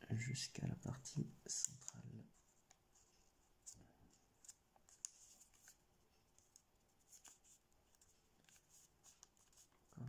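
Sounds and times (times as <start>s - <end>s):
paper crackling and rustling: 3.5s - 10.0s.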